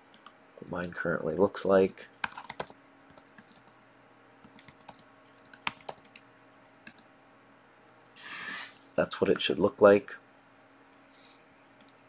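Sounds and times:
computer keyboard keystrokes: 2.2 - 3.8, 4.5 - 6.2, 6.8 - 7.1.

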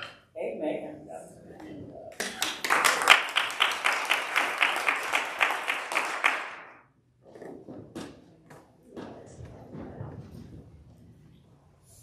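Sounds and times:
audience applauding: 2.2 - 6.8.

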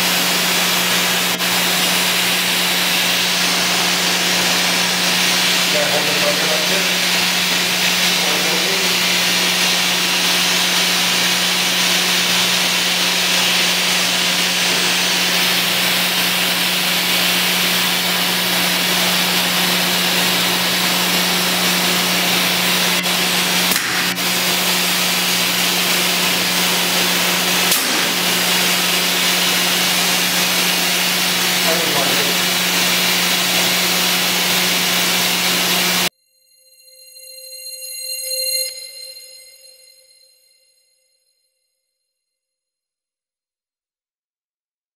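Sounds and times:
machine motor hum with hiss: 0.0 - 36.1.

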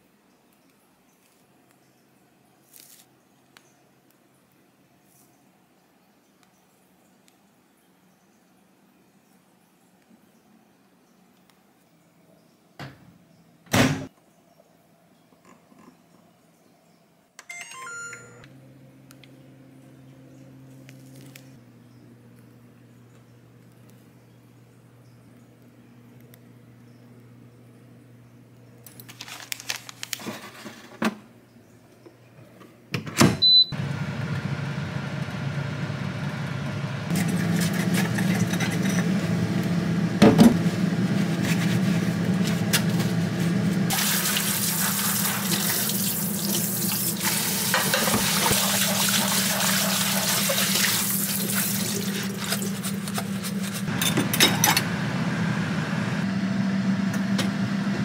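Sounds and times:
low hum: 33.8 - 44.0, 51.0 - 58.0
tap water running into sink: 43.9 - 52.7.

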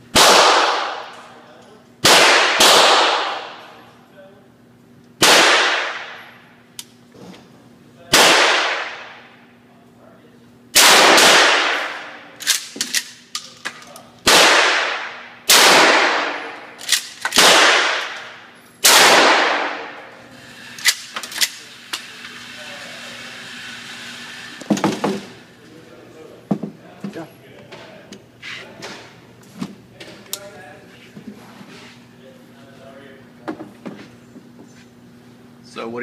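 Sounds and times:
ventilation hum: 0.0 - 36.0
shotgun blasts echoing: 0.1 - 1.1, 2.0 - 3.6, 5.2 - 6.2, 8.1 - 9.3, 10.8 - 12.2, 14.3 - 16.8, 17.4 - 20.0.

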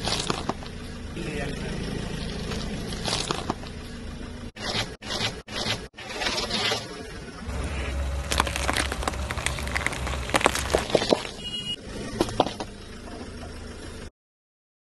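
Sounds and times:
vegetables cracking under tyre: 0.0 - 0.8, 8.0 - 11.5
low rumble: 7.4 - 13.2.

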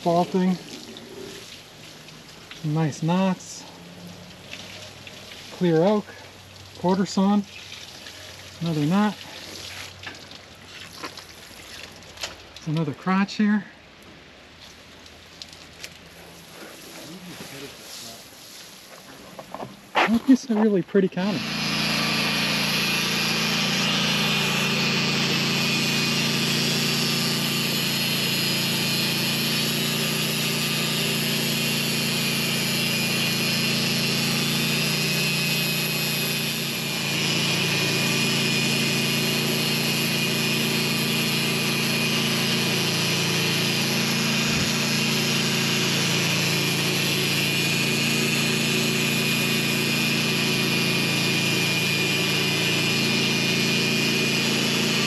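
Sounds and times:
sawmill engine running: 19.6 - 55.0
saw blade cutting log: 19.9 - 55.0.

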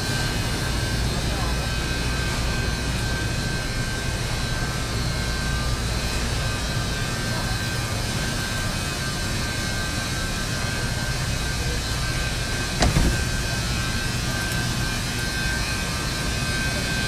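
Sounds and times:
ventilation and refrigeration hum: 0.0 - 17.0
brief thump: 12.8 - 13.3.

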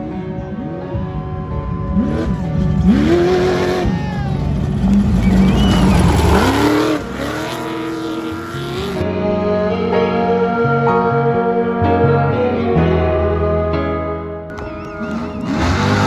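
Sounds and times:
race engines revving: 0.0 - 9.1, 14.5 - 16.0
tyres rushing on dirt: 1.4 - 9.0, 14.8 - 16.0.

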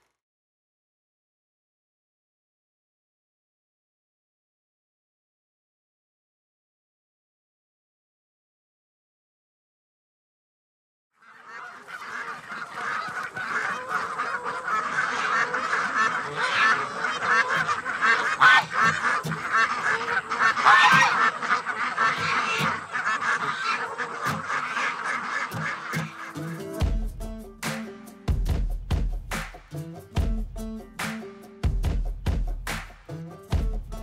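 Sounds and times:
geese honking: 11.2 - 28.0.

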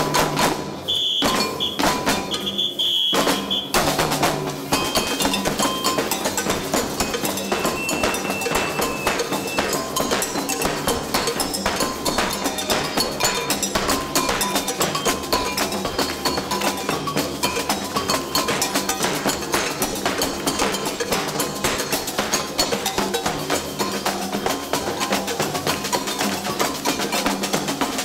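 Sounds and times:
drums and cowbell beat: 0.0 - 28.0
shrill high tones: 0.8 - 3.8, 7.1 - 10.2.

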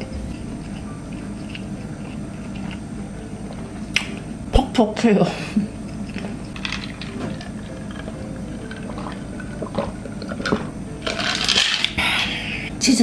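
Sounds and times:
person gulping a drink: 6.8 - 10.7.

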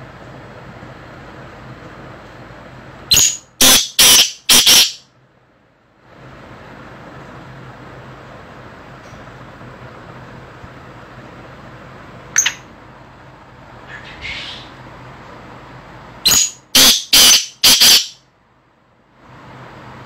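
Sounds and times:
steady low hum: 0.0 - 20.0
bird calling loud notes: 3.1 - 5.0, 13.9 - 14.8, 16.3 - 18.2.

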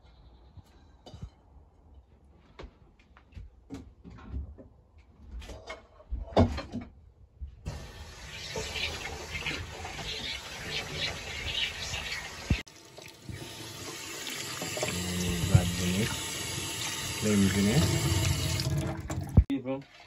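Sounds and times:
tap water running into sink: 7.7 - 19.5.

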